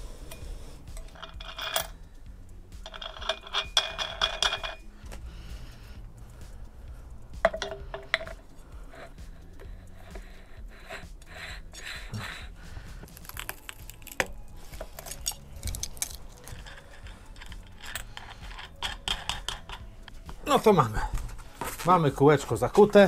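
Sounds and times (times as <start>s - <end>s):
metallic clicks and rattles: 0.3s - 5.1s, 7.1s - 10.2s, 13.2s - 20.4s
sharp metal knocks: 7.4s - 8.4s.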